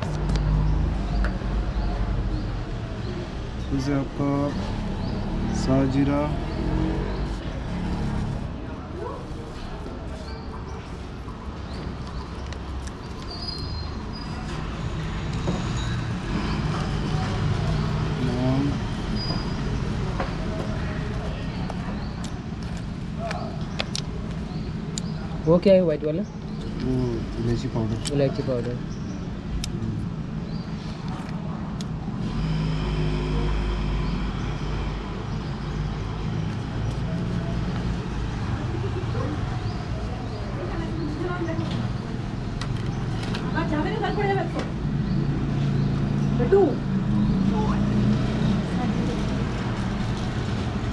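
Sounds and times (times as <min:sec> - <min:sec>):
road traffic rumbling: 0:00.0 - 0:50.9.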